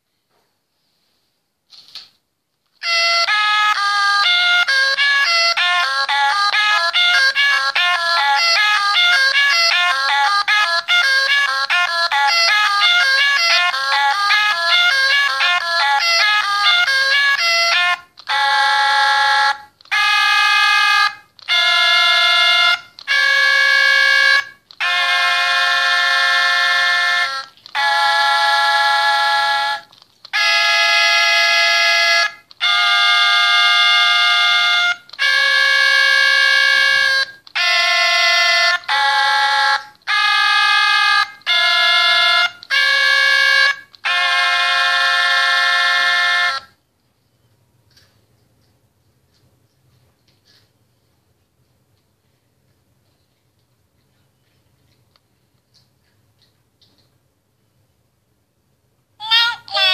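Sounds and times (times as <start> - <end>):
singing plush toys electronic notes: 2.8 - 46.8, 59.2 - 59.9.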